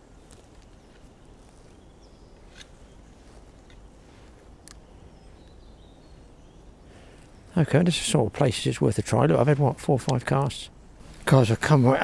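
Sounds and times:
distant bird calls: 0:00.0 - 0:12.0
sharp clicks: 0:04.6 - 0:04.8.

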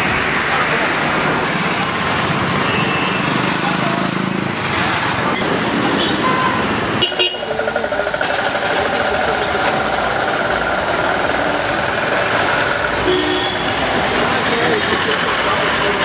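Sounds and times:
vehicles passing on street: 0:00.0 - 0:16.0
steady engine-like hum: 0:05.0 - 0:16.0.

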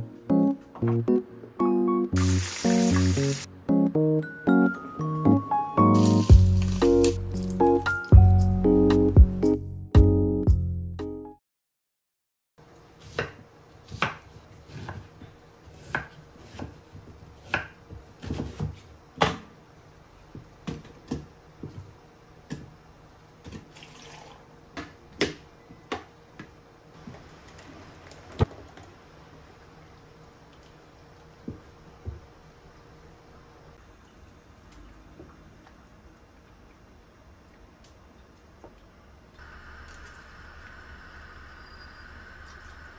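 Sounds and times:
faint steady hum: 0:28.8 - 0:42.9.

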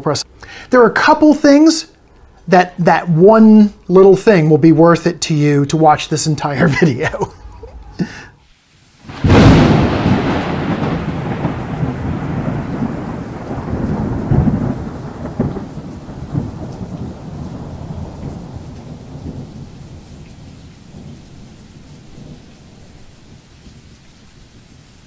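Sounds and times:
rain: 0:00.0 - 0:25.0
sharp thunder cracks: 0:09.1 - 0:20.0
thunder rumbling: 0:09.1 - 0:23.4.

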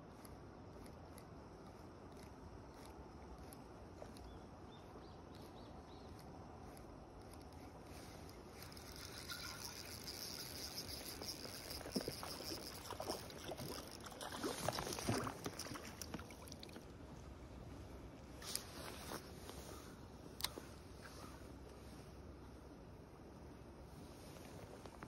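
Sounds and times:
fishing reel whirring: 0:08.2 - 0:16.2
fish splashing in water: 0:09.2 - 0:16.8.

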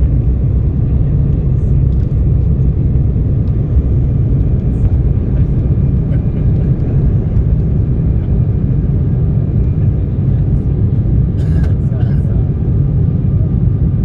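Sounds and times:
airliner cabin low rumble: 0:00.0 - 0:14.0
faint steady engine whine: 0:00.0 - 0:14.0.

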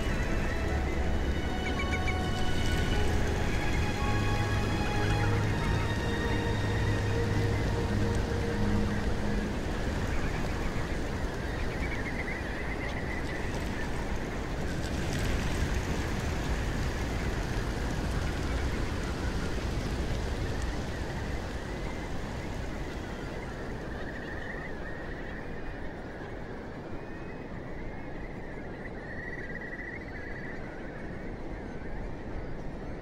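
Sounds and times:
steady low rushing noise: 0:00.0 - 0:12.6
flock of birds calling trills: 0:00.0 - 0:33.0.

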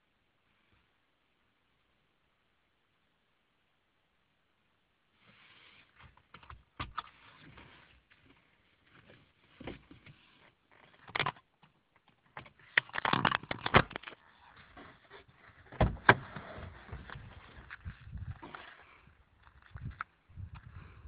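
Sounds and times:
faint hiss: 0:00.0 - 0:06.3.

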